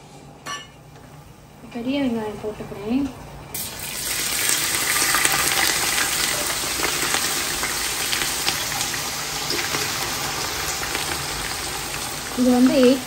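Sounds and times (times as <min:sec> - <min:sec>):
onions sizzling in hot oil: 0:03.6 - 0:13.0.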